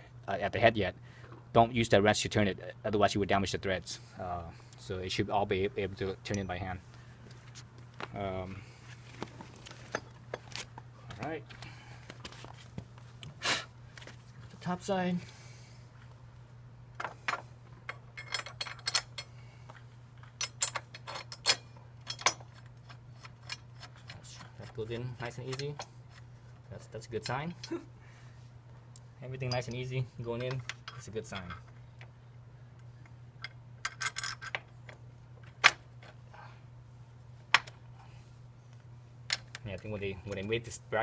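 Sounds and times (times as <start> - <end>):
metal bolt and washers clinking: 17.0 - 19.4, 20.2 - 26.2, 29.4 - 32.1, 33.4 - 36.2, 39.3 - 40.5.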